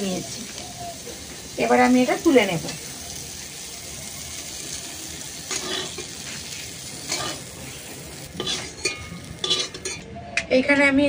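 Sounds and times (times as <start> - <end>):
hot oil sizzling: 0.0 - 10.2
metal spoon scraping pan: 5.5 - 10.1.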